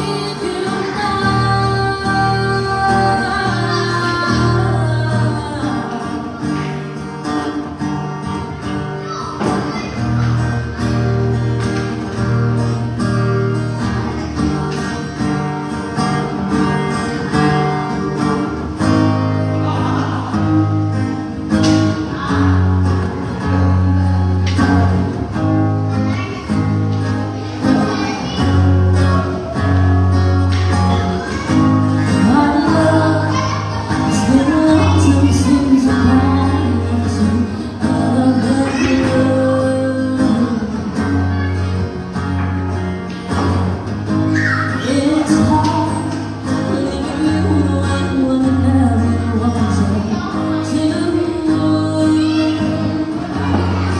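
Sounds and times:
woman singing: 0.0s - 6.8s, 31.9s - 41.8s, 44.7s - 53.9s
acoustic guitar strummed: 0.0s - 53.9s.

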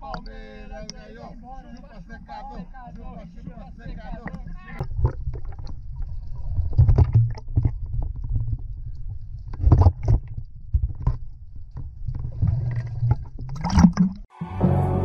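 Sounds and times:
underwater rumble of moving water: 0.0s - 14.3s
knocks and bubbly crackles: 4.2s - 14.3s.

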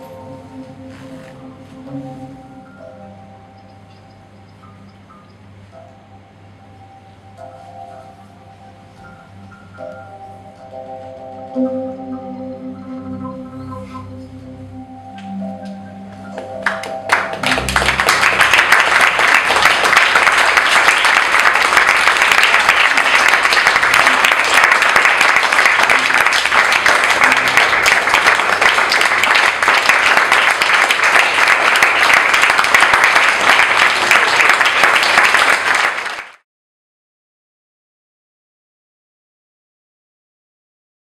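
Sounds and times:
audience applauding: 16.4s - 36.4s.

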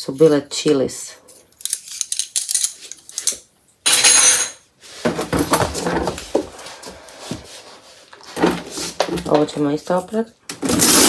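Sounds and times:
rummaging in kitchen drawer: 8.2s - 9.9s.

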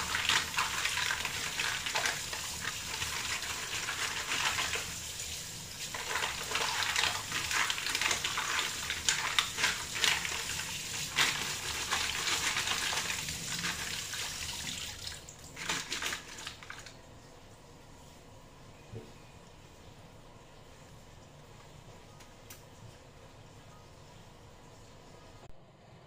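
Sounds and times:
tap water running: 0.0s - 17.1s.

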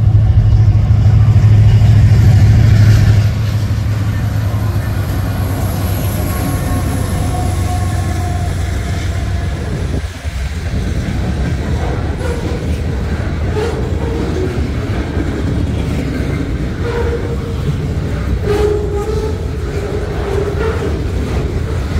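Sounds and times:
diesel locomotives rumbling: 0.0s - 21.9s
wheels clicking over rail joints: 4.5s - 21.9s.

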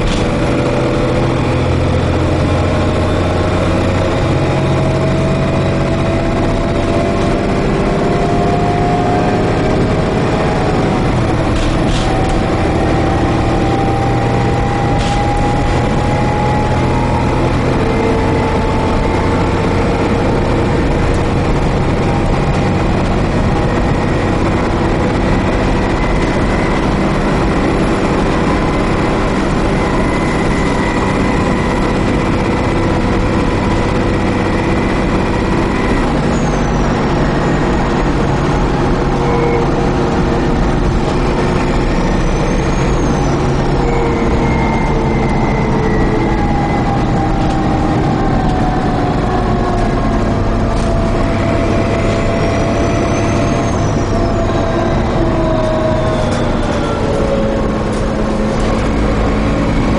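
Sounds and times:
bus engine drone: 0.0s - 59.9s
road rumble: 0.0s - 59.9s.

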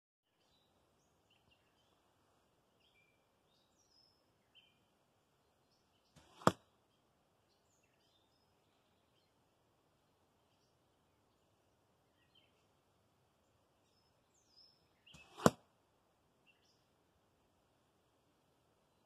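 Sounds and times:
faint bird chirps: 0.3s - 2.1s, 2.8s - 9.4s, 10.4s - 12.8s, 13.4s - 15.5s, 16.4s - 16.9s
arrow rushing through air: 6.2s - 6.6s, 15.2s - 15.6s
arrow smacking target: 6.2s - 6.7s, 15.2s - 15.7s.

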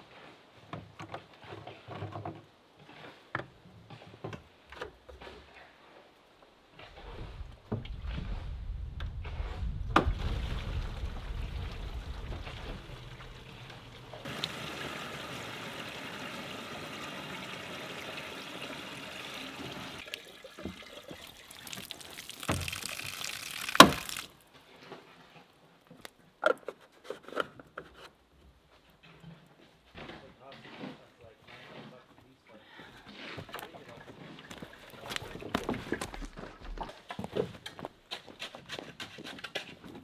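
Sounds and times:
water pouring into plastic jug: 9.9s - 24.4s
water splashing from valve: 10.0s - 24.4s.

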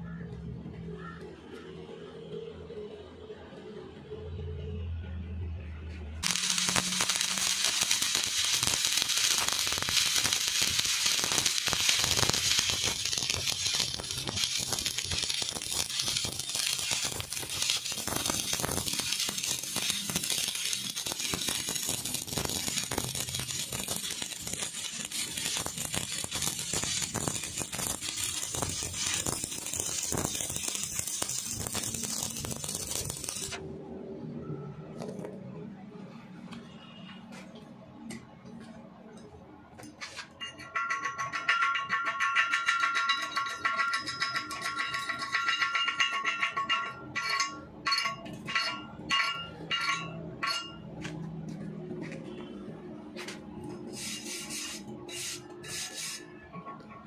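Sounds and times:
welding arc crackling: 6.2s - 33.6s, 53.2s - 56.3s.

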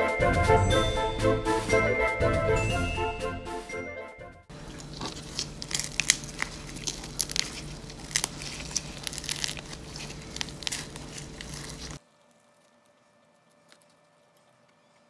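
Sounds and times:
bread crust crackling: 4.5s - 15.0s
low steady hum: 4.5s - 15.0s.

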